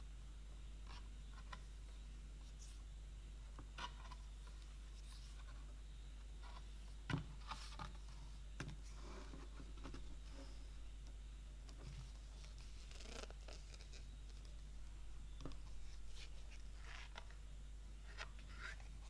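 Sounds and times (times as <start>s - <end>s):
faint steady hum: 0.0s - 19.0s
cardboard pages turning: 11.7s - 14.7s, 15.4s - 17.4s.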